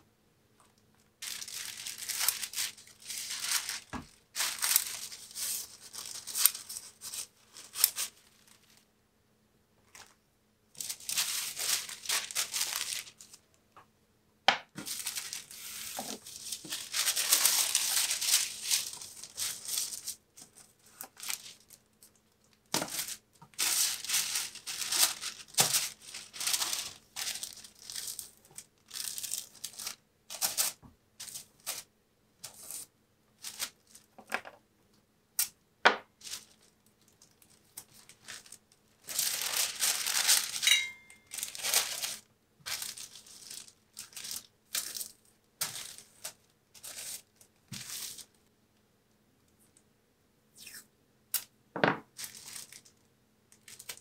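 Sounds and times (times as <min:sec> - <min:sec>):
tissue paper rustling: 0:01.2 - 0:08.8, 0:10.8 - 0:13.4, 0:14.8 - 0:21.8, 0:22.8 - 0:34.1, 0:36.2 - 0:36.7, 0:37.4 - 0:48.3, 0:52.2 - 0:52.9.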